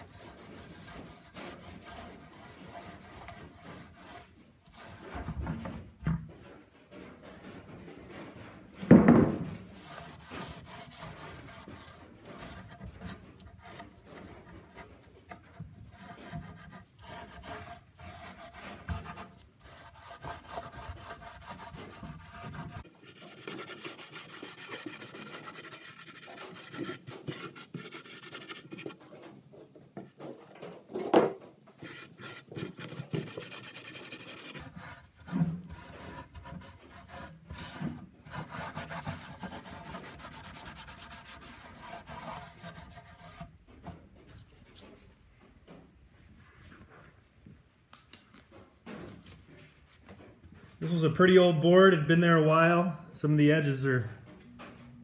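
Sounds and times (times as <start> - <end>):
rag scrubbing rough wood: 0.0 - 5.3, 9.7 - 29.3, 31.7 - 43.5
knock: 8.8 - 9.7.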